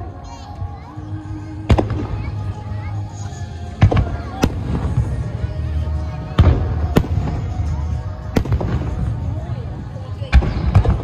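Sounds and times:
fireworks bursting with booms: 1.6 - 2.5, 3.7 - 11.0.

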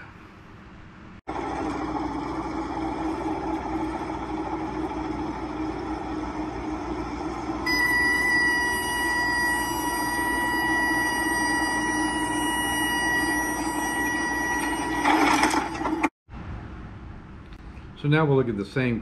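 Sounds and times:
warning horn high tone: 7.7 - 15.4.

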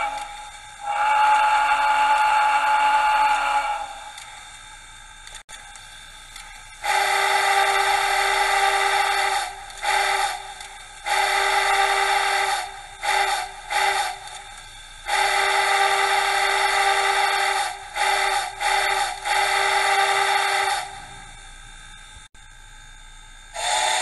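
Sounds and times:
steam whistle blasts and toots: 0.0 - 4.2, 6.8 - 14.4, 15.0 - 21.2, 23.5 - 24.0.

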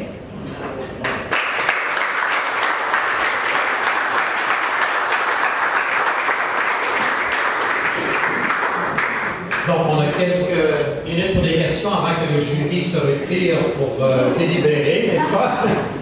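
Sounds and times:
audience applauding: 1.0 - 9.7.

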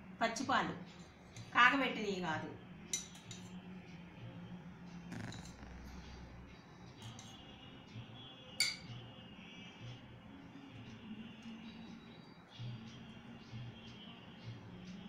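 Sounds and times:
low steady hum: 0.0 - 9.1
steel spoon clinking on tumbler: 2.9 - 3.6, 8.6 - 9.0.

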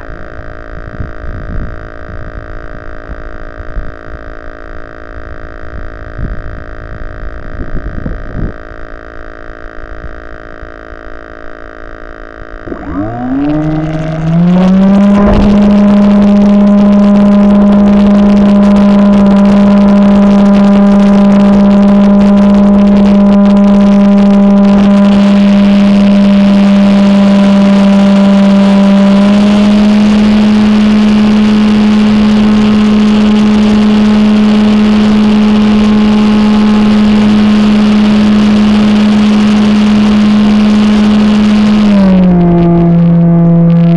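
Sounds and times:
model aircraft propeller motor: 0.0 - 43.9.

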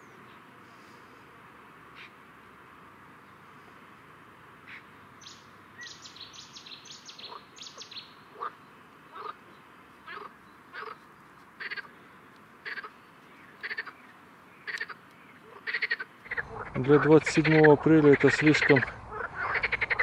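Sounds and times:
frogs croaking: 4.6 - 20.0
bird chirping: 4.7 - 11.4.

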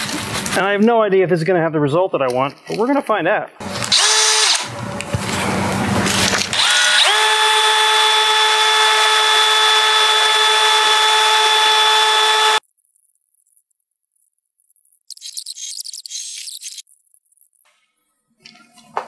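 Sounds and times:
cordless drill mixing mud: 3.7 - 4.8, 6.0 - 12.6.

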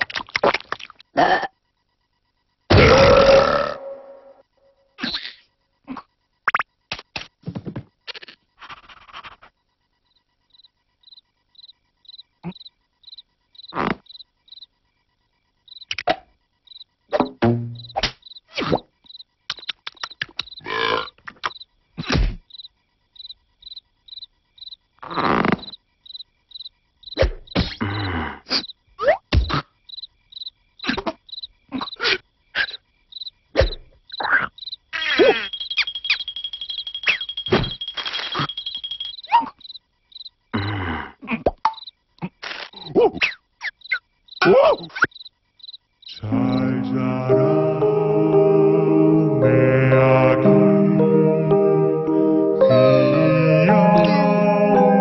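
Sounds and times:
cricket chirping: 0.0 - 55.0
cartoon squeaks and grunts: 5.0 - 5.4, 33.6 - 35.6, 39.3 - 39.6, 42.2 - 45.1
cartoon pops: 6.4 - 7.4, 15.9 - 16.3, 17.1 - 18.9, 21.3 - 22.4, 27.2 - 27.8, 28.5 - 29.7, 33.6 - 34.3, 41.3 - 43.4
cartoon thumps: 17.1 - 18.9, 21.3 - 22.5, 27.1 - 27.8, 29.0 - 29.7, 33.6 - 34.4, 37.1 - 38.6.

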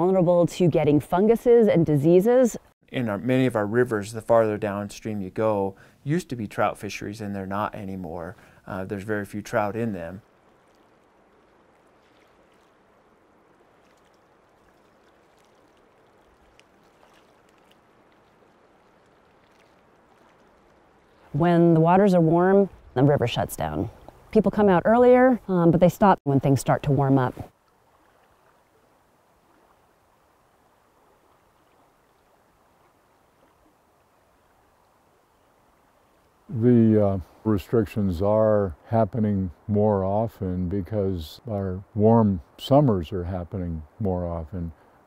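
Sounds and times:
flowing river water: 0.0 - 40.6, 41.5 - 45.0
small clicks and drips: 9.4 - 21.4, 27.5 - 36.5.

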